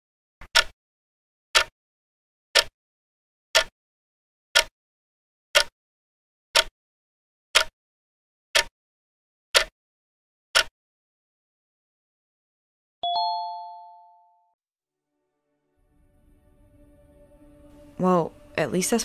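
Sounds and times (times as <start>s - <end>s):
clock ticking: 0.4s - 0.8s.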